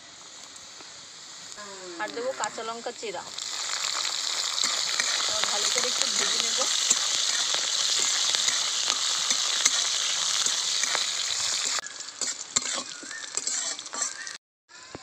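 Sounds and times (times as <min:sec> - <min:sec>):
spices sizzling in hot oil: 0:00.0 - 0:14.4
metal spatula scraping pan: 0:03.5 - 0:14.4.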